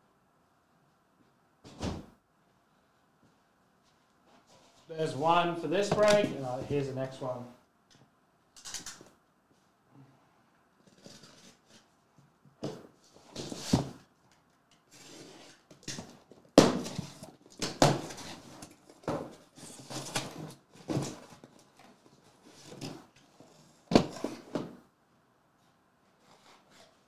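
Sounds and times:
cardboard boxes rustling and scraping: 0:12.7 - 0:14.0, 0:14.9 - 0:15.6, 0:16.8 - 0:24.8.

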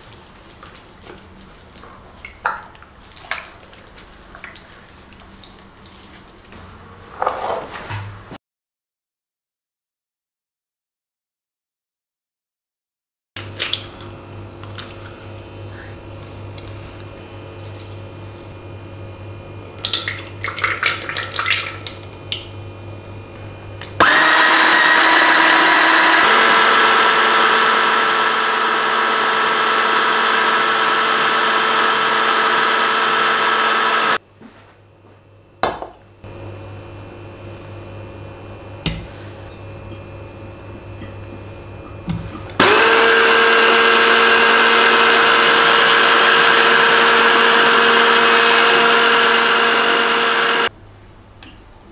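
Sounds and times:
immersion blender running: 0:23.9 - 0:34.2, 0:42.5 - 0:50.7.

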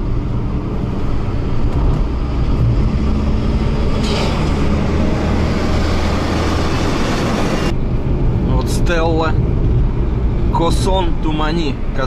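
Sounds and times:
engine and tyre drone: 0:00.0 - 0:12.0.

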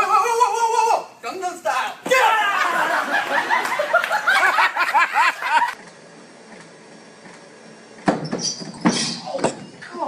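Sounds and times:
people laughing: 0:02.4 - 0:05.8.

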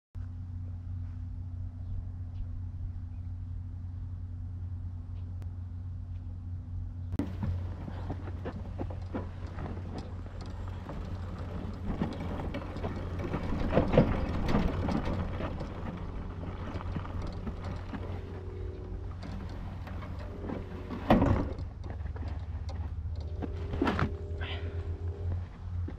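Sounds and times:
clattering and rustling: 0:07.2 - 0:24.4
small engine idling: 0:07.2 - 0:25.9.

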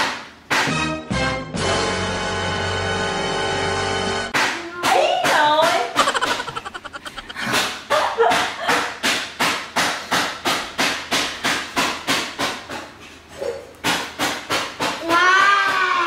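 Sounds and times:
rhythmic sharp knocks: 0:00.0 - 0:01.0, 0:04.3 - 0:12.8.

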